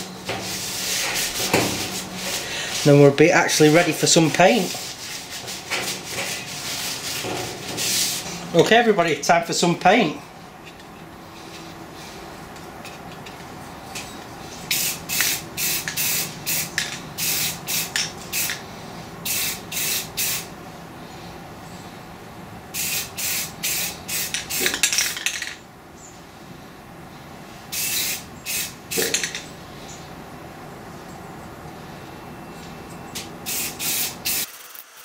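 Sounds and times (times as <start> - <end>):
spray paint can hissing: 14.7 - 18.6, 19.2 - 20.5, 22.7 - 25.0, 27.7 - 29.4, 33.5 - 35.0.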